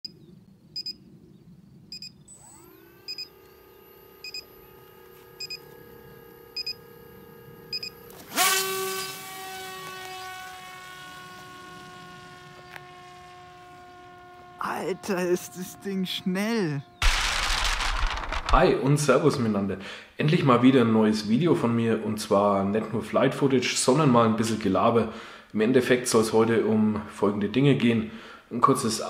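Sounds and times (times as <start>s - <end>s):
short electronic beeps: 0.8s - 1.0s, 1.9s - 3.3s
electric motor propeller whine: 2.0s - 18.6s.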